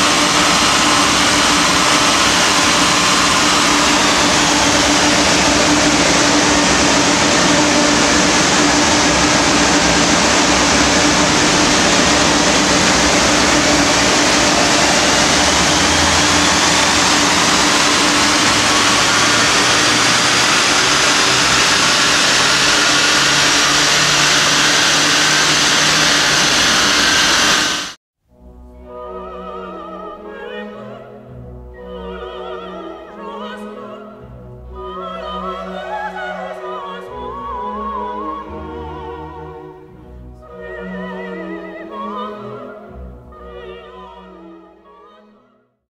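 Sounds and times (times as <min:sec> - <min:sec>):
diesel engine on dynamometer: 0:00.0 - 0:28.0
engine whine: 0:00.0 - 0:28.0
large cooling fan rushing: 0:00.0 - 0:28.0.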